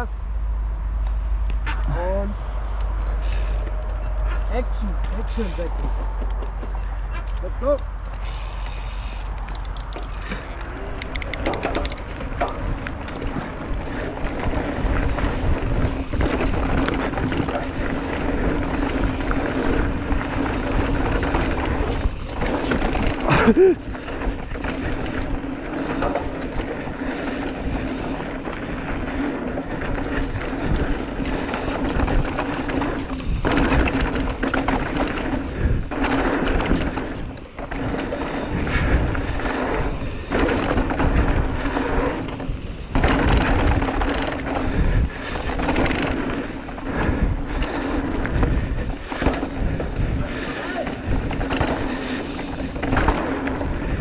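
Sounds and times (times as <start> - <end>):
bike tyres rolling over dirt: 1.9 - 54.0
bike knocks and rattles: 3.1 - 54.0
wind rush: 9.2 - 54.0
loud clatter: 28.8 - 50.4.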